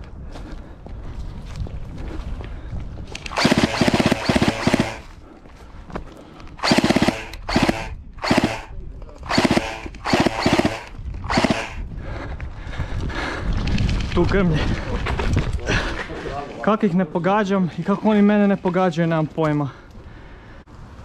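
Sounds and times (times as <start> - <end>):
airsoft gun firing full-auto: 3.3 - 5.1, 6.6 - 11.8.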